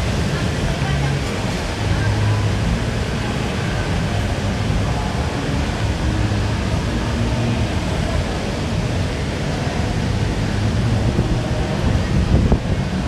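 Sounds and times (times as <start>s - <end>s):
low hum: 0.0s - 13.0s
rumble and hiss: 0.0s - 13.0s.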